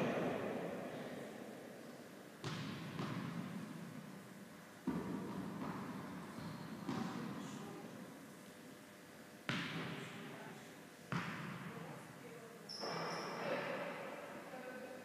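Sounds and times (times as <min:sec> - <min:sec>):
shoe squeak: 0:12.7 - 0:13.5.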